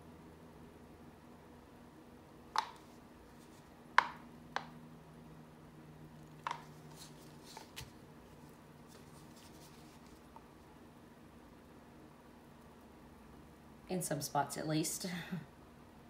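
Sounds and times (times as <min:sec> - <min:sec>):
faint steady hum: 0:00.0 - 0:16.0
plastic cups clicking and tapping: 0:04.0 - 0:04.7, 0:06.4 - 0:06.7.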